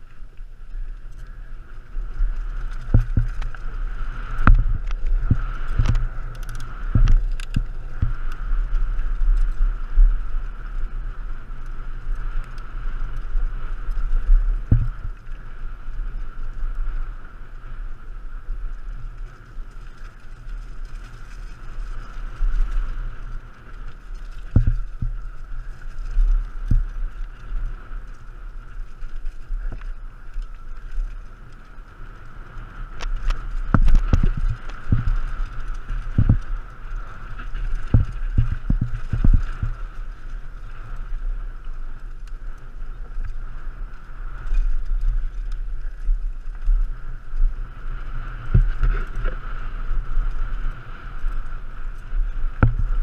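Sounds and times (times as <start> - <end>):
bike rattling over bumps: 0.0 - 53.0
wind buffeting microphone: 0.0 - 53.0.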